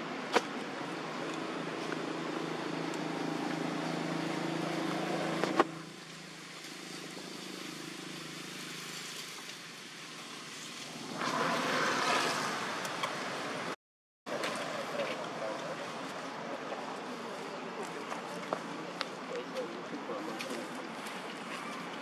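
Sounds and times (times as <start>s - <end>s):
engine drone: 0.0s - 17.8s
broad rustling hiss: 5.9s - 12.8s.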